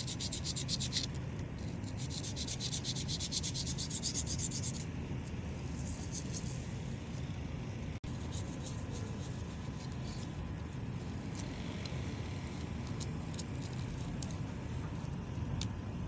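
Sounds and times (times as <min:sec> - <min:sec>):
toothbrush scrubbing metal: 0:00.0 - 0:04.9, 0:08.1 - 0:15.7
low background rumble: 0:00.0 - 0:16.0.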